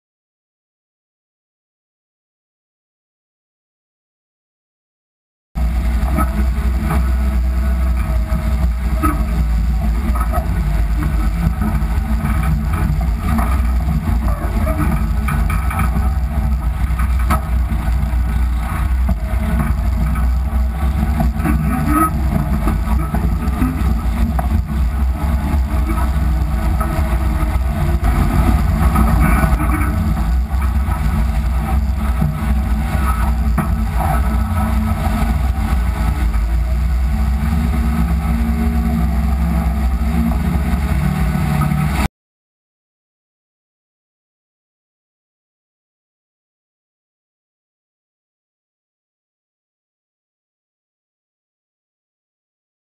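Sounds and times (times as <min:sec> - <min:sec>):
truck engine rumble: 0:05.6 - 0:42.1.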